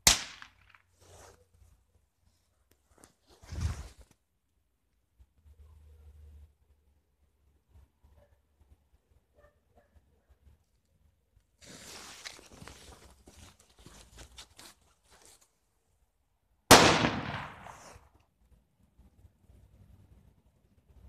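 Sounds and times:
firecracker bang: 16.7s - 18.1s.

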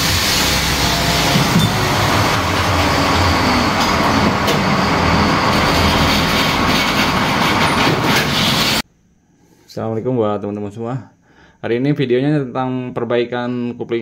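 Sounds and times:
metal lathe running: 0.0s - 8.8s.

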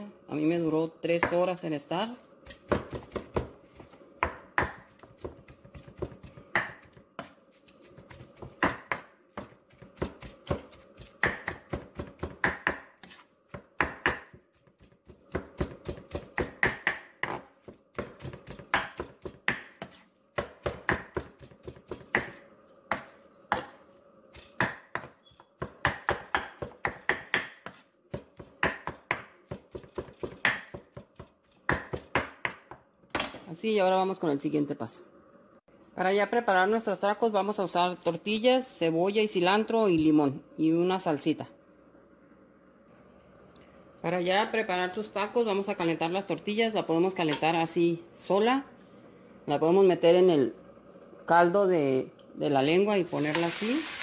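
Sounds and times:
knife chopping on wooden board: 2.5s - 23.8s, 24.5s - 32.8s.

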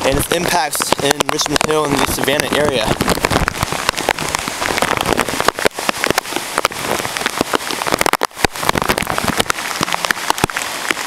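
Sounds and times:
heavy rain pouring: 0.0s - 11.0s
raindrops hitting near microphone: 0.0s - 11.0s.

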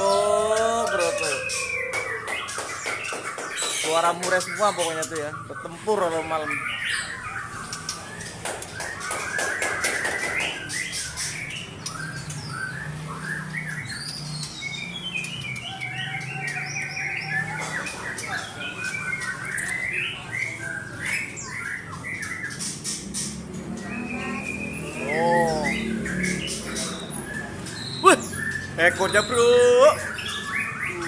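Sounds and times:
birds whistling and chirping: 0.0s - 31.0s.

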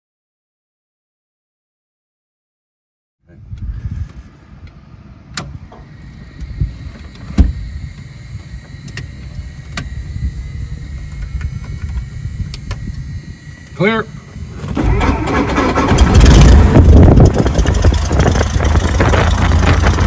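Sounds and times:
low irregular rumble: 3.3s - 20.0s
faint high whine: 4.2s - 15.8s.

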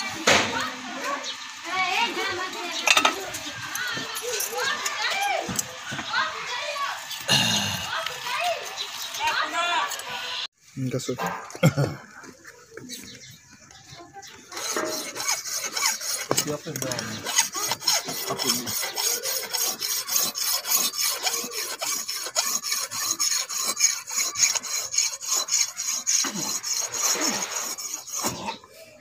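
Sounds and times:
hand file rasping on brass: 1.7s - 10.0s, 14.5s - 28.7s.

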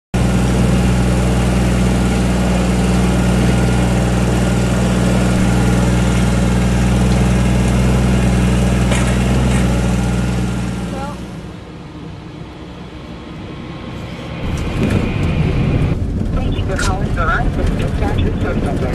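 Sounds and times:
tractor engine idling: 0.2s - 18.9s.

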